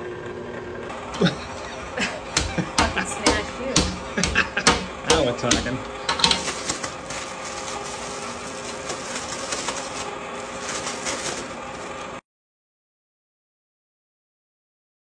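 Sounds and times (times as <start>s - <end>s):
plastic bag crinkling: 6.1s - 12.2s.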